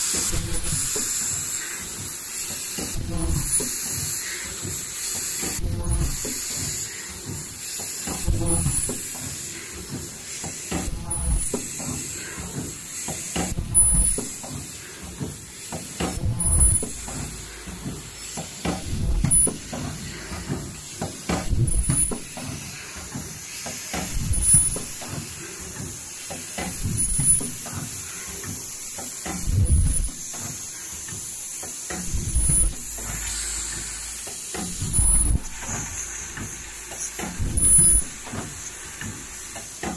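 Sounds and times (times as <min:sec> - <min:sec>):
compressed air hissing: 0:00.0 - 0:39.9
machine knocks and clatter: 0:00.1 - 0:39.9
short high-pitched squeal: 0:32.4 - 0:39.8.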